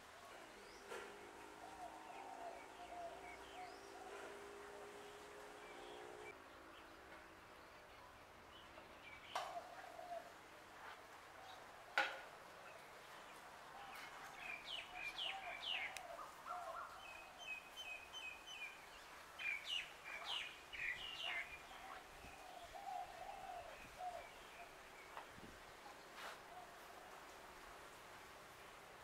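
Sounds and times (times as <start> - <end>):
birds chirping: 0.3 - 6.4, 12.7 - 26.6.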